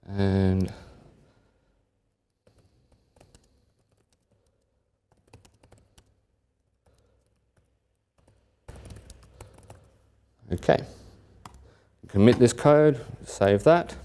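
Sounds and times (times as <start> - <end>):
computer keyboard typing: 2.4 - 10.0, 11.4 - 11.7.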